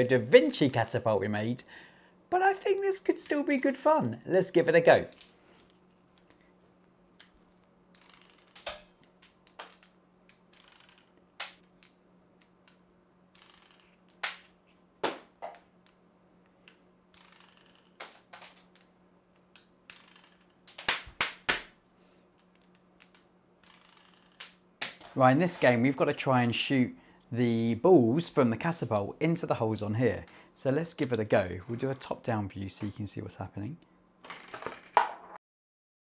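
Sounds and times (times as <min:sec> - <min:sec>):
toy catapult clicks and snaps: 0:07.2 - 0:14.6, 0:16.7 - 0:18.9, 0:19.5 - 0:21.0, 0:22.4 - 0:24.6.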